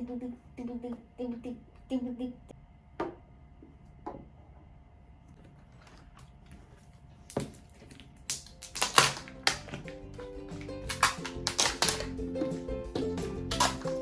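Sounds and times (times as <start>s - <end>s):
foil wrappers crinkling: 7.0s - 12.2s.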